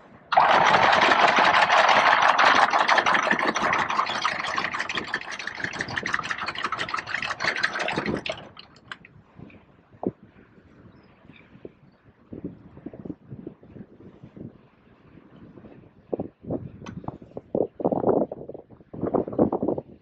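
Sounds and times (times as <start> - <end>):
anchor chain rattling out: 0.3 - 9.0.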